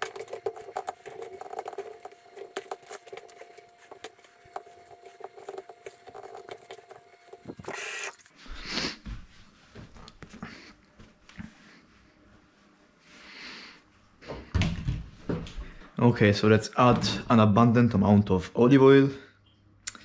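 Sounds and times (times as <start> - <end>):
paper rustling: 0.0 - 8.3.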